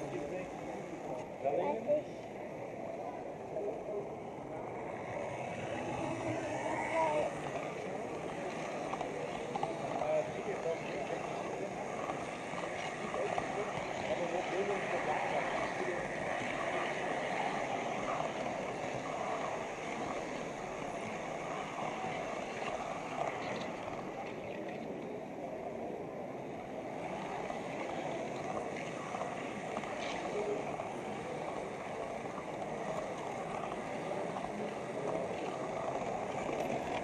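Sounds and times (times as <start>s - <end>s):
model train wheels rattling on rails: 4.6s - 25.6s, 26.5s - 37.0s.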